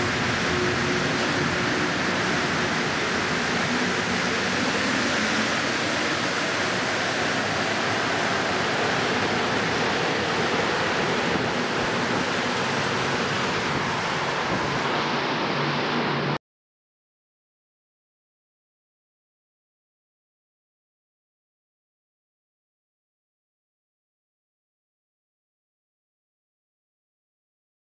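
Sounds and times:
subway train rushing past: 0:00.0 - 0:16.4.

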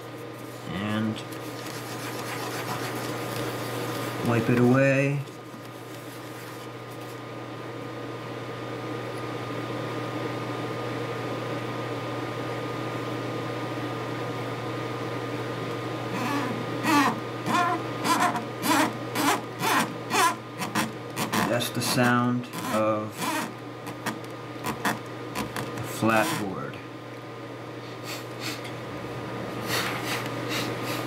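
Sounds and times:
steady background hum: 0:00.0 - 0:31.0
fingertip rubbing solder pads: 0:16.2 - 0:21.5, 0:22.6 - 0:25.6.

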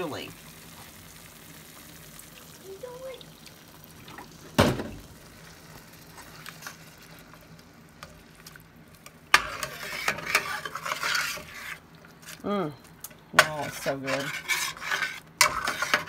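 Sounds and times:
spatula scraping a steel skillet: 0:09.3 - 0:12.4, 0:13.4 - 0:16.0.

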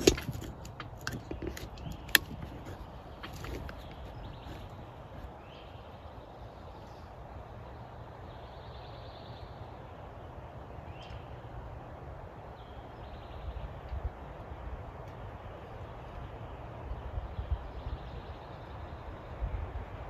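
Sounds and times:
bird chirps: 0:10.8 - 0:11.5.

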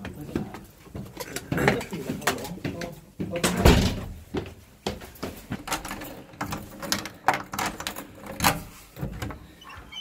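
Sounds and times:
footsteps on stone stairs: 0:00.0 - 0:05.8
door opening: 0:05.8 - 0:10.0.

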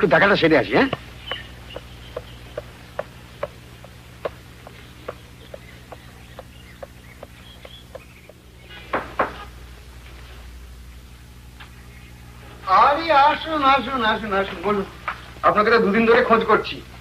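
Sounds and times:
steady low hum: 0:00.0 - 0:17.0
footsteps on pavement: 0:00.5 - 0:09.4.

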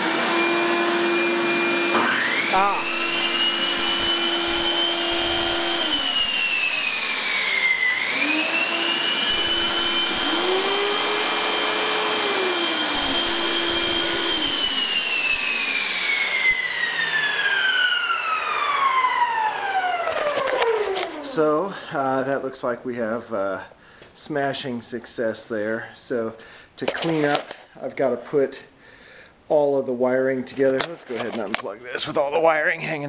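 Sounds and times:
vacuum and power tool motors whining: 0:00.0 - 0:21.7.

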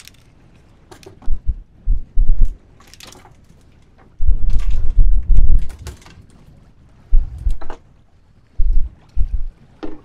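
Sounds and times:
water splashing at boatside: 0:00.0 - 0:01.8, 0:05.6 - 0:10.0
wind buffeting microphone: 0:00.4 - 0:02.8, 0:04.1 - 0:10.0.

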